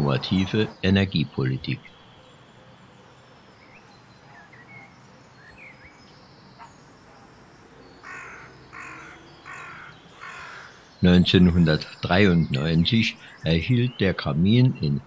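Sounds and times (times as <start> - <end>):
small birds chirping: 0.0 - 15.0
crow cawing: 8.0 - 10.8.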